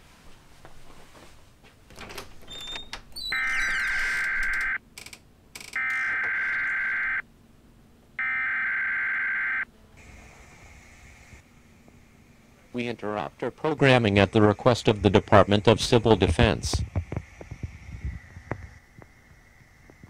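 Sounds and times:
crackling clicks: 1.9s - 7.1s
harsh buzzing data bursts: 5.6s - 7.2s, 13.7s - 16.8s.

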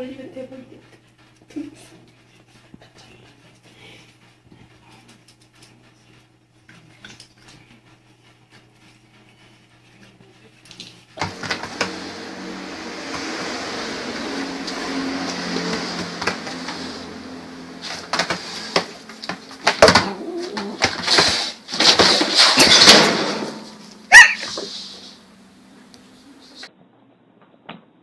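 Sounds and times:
knocks and rustles: 11.2s - 25.1s
cat growling: 19.6s - 21.5s
cat crying: 24.1s - 24.5s.

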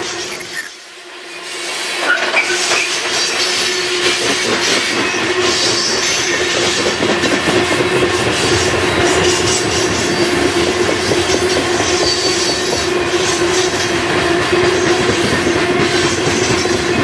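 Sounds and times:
high wheel squeals: 0.0s - 6.8s, 8.1s - 13.9s
steel wheels on rail: 0.0s - 17.0s.

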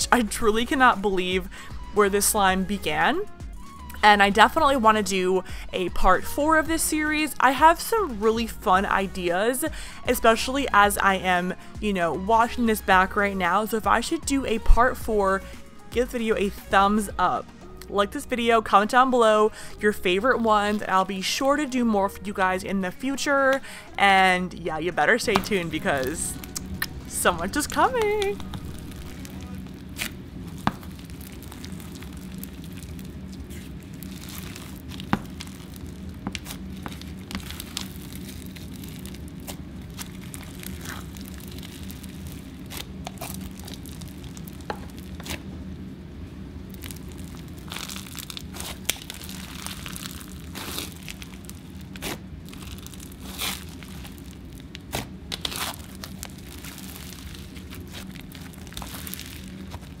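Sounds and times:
low steady hum: 0.0s - 60.0s
slime crunching and popping: 27.9s - 45.4s, 46.7s - 60.0s.

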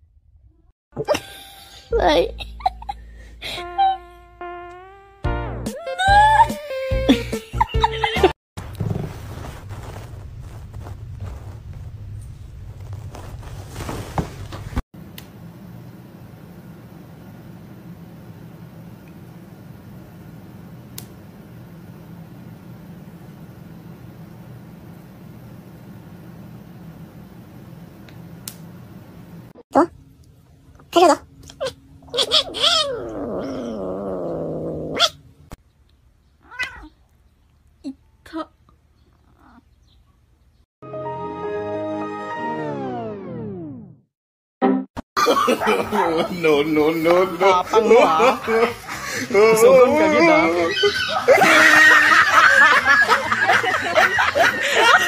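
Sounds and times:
steady low hum: 0.0s - 5.6s
cat yowling: 31.6s - 34.2s, 36.4s - 37.0s, 50.4s - 52.1s
kitten growling: 31.6s - 35.2s
cat meowing: 36.4s - 37.0s.

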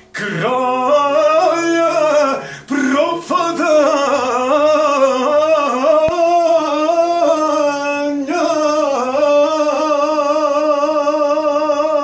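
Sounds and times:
man singing unaccompanied: 0.0s - 12.0s
short breath: 2.4s - 2.8s.

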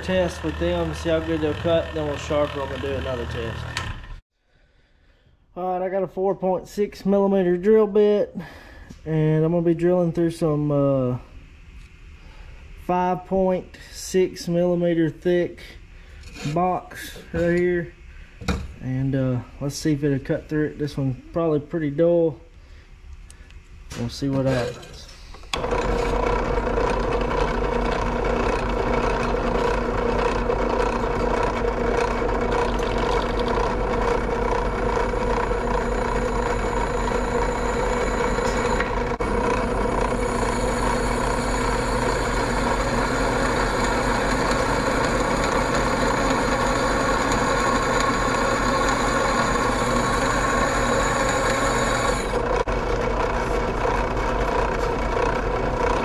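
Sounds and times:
drill bit grinding into steel: 0.0s - 4.2s, 25.5s - 52.6s
drill press motor hum: 0.0s - 4.2s, 25.3s - 56.0s
thin high whine: 32.6s - 52.5s.

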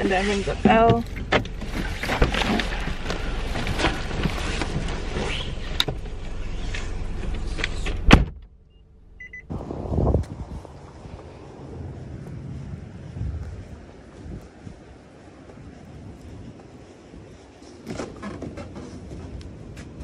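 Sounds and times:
footsteps outdoors: 0.0s - 20.0s
car door shutting: 3.8s - 8.5s
wind on microphone: 9.5s - 20.0s.

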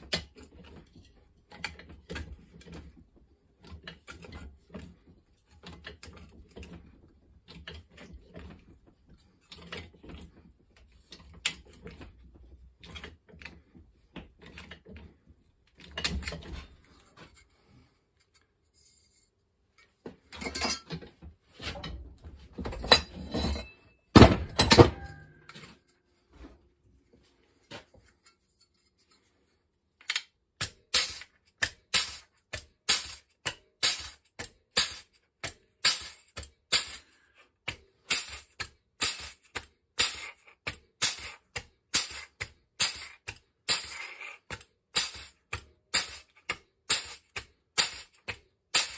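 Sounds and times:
metal stretcher clicking and clunking: 0.0s - 25.9s.

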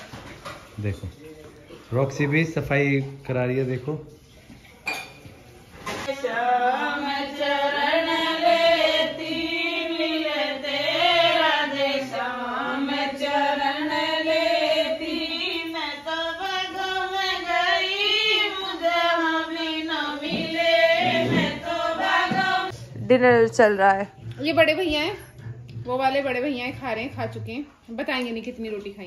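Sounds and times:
women singing folk song: 6.0s - 23.2s.

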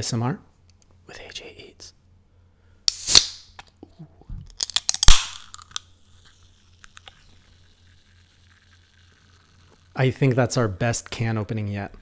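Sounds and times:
gas hissing and fizzing: 2.9s - 3.3s
can opening pop: 2.9s - 3.7s, 4.5s - 5.9s.

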